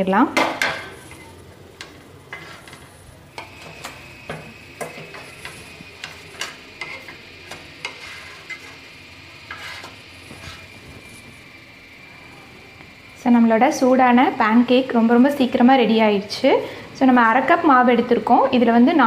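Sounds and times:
faint sizzle: 0:00.0 - 0:19.0
wooden spatula scraping griddle: 0:00.6 - 0:11.4.

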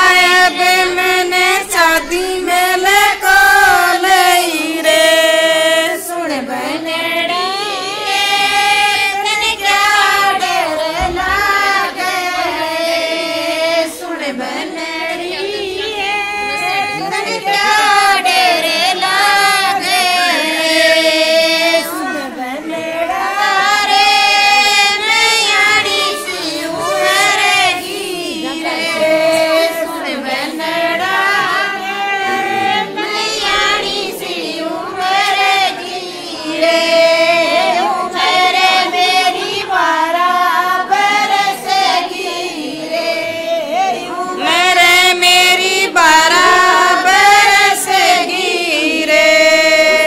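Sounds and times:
women singing folk song: 0:00.0 - 0:50.0.

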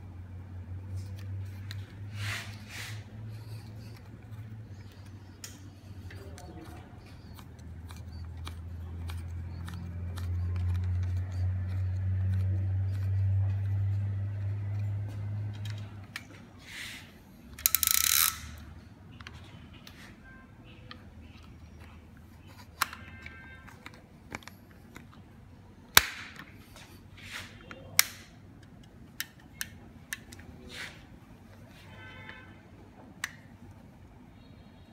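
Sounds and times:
plastic clicks and rubbing: 0:03.4 - 0:16.4, 0:20.8 - 0:25.3
plastic parts snapping together: 0:25.9 - 0:26.6, 0:28.0 - 0:30.4.

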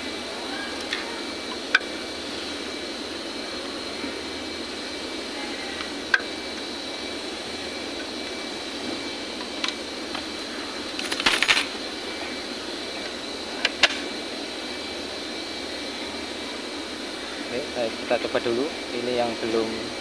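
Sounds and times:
steady hum with high whine: 0:00.0 - 0:20.0.

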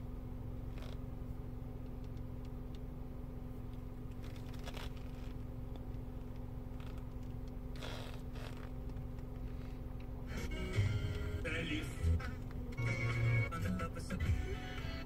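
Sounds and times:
car cabin hum: 0:00.0 - 0:15.0.

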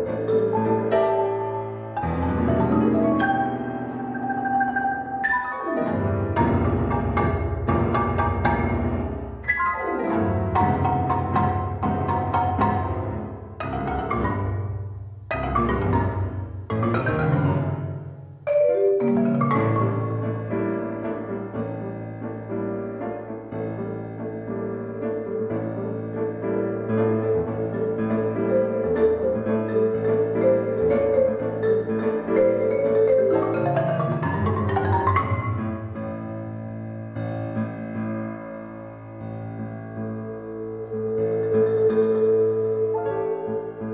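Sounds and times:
marimba: 0:00.0 - 0:21.4, 0:27.1 - 0:36.1
grand piano: 0:00.0 - 0:43.9.

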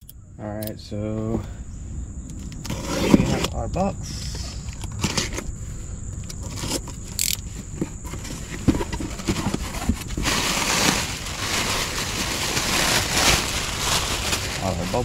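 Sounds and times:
cardboard knocks and scrapes: 0:07.6 - 0:11.1
plastic packing crinkling: 0:08.1 - 0:15.0.

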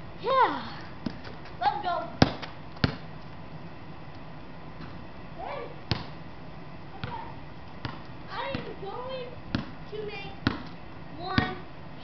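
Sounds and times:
steady background hiss: 0:00.0 - 0:12.0
basketball thud: 0:02.2 - 0:03.1, 0:05.9 - 0:06.2, 0:10.4 - 0:10.7.

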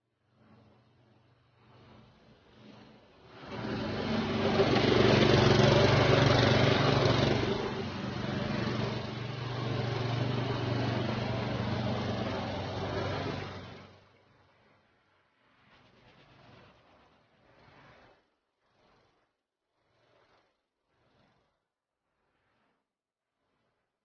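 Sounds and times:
small engine running: 0:00.2 - 0:14.7, 0:19.8 - 0:21.6.

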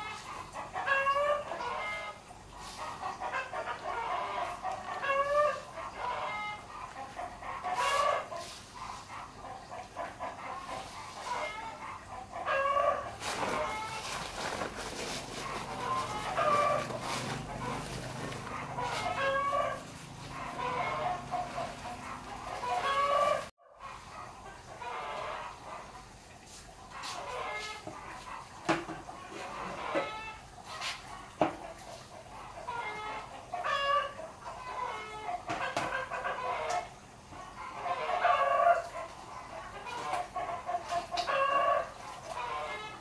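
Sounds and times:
chickens clucking: 0:00.0 - 0:43.0
greens rustling in plastic bucket: 0:13.1 - 0:23.5.

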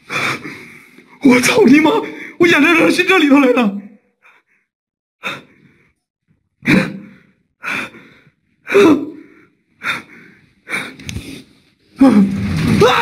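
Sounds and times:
man breathing heavily: 0:06.6 - 0:11.8.

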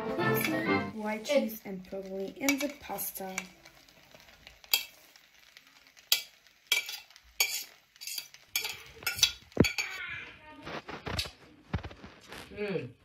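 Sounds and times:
utensils scraping metal pot: 0:01.8 - 0:03.6, 0:04.6 - 0:05.0, 0:06.1 - 0:10.0.

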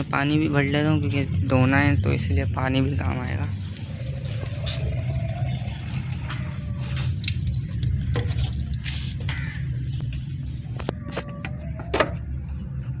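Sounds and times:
water pouring into plastic bottle: 0:03.6 - 0:08.8.

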